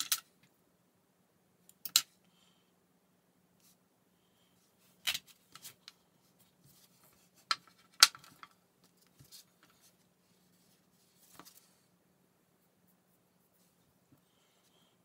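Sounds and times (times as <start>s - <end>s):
plastic tools clicking and knocking: 7.4s - 8.6s.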